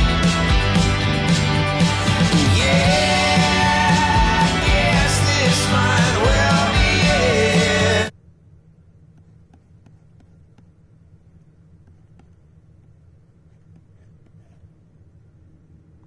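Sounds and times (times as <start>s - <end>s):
steady low hum: 0.0s - 16.0s
stylus tapping and scratching on screen: 8.8s - 15.2s.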